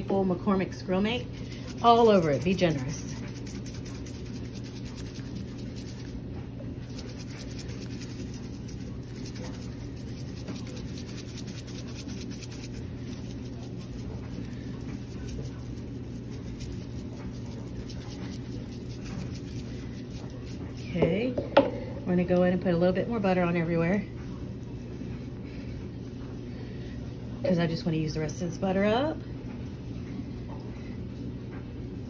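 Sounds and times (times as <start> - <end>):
steady low hum: 0.0 - 32.0
seasoning shaker shaking: 1.1 - 6.2, 6.8 - 21.0
rubbing on chicken skin: 1.2 - 6.2, 6.8 - 21.0.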